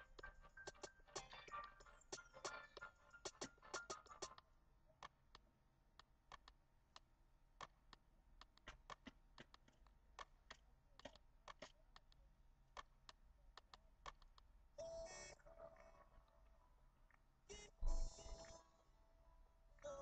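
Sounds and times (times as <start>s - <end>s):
hands clicking and tapping: 6.3s - 12.2s, 12.8s - 14.5s.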